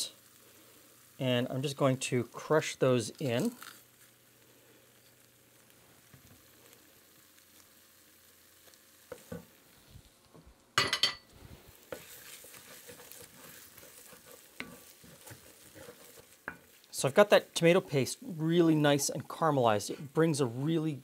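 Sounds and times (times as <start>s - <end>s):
paste sizzling in a pan: 0.0s - 21.0s
wooden spoon scraping a pan: 11.5s - 20.8s.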